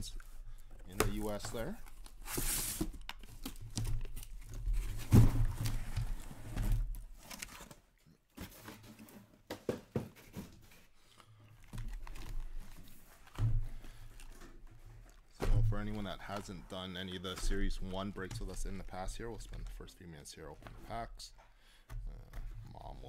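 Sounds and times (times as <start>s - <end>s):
cardboard scraping and shuffling: 0.4s - 7.8s, 8.4s - 11.0s, 11.6s - 21.1s.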